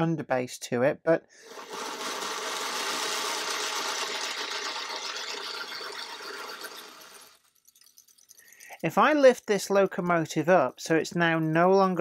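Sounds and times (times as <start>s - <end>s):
model locomotive whirring on rollers: 1.4s - 7.5s.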